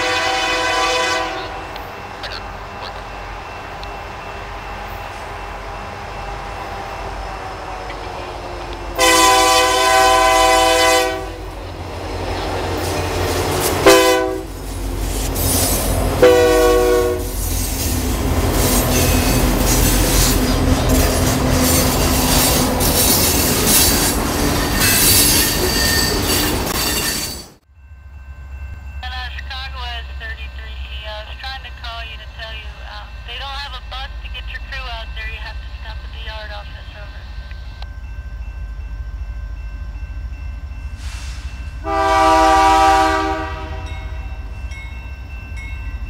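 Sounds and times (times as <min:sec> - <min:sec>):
locomotive air horn blasts: 0:00.0 - 0:01.8, 0:09.0 - 0:11.5, 0:13.8 - 0:14.6, 0:16.2 - 0:17.4, 0:41.1 - 0:44.2
train wheel noise: 0:00.0 - 0:27.7
high squeal from wheels: 0:14.7 - 0:16.0, 0:17.2 - 0:27.6.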